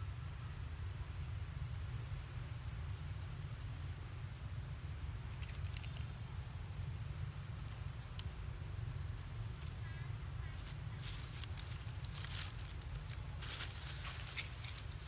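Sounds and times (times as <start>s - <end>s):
faint clicks: 7.6s - 9.0s.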